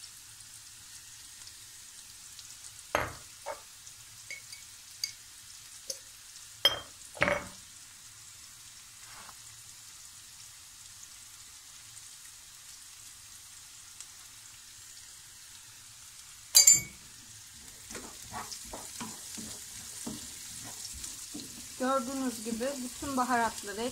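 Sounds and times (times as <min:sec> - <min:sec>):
chickpeas sizzling in oil: 0:00.0 - 0:23.9
sharp knocks on pan: 0:03.0 - 0:03.6
wooden spoon scraping and stirring: 0:17.6 - 0:23.0.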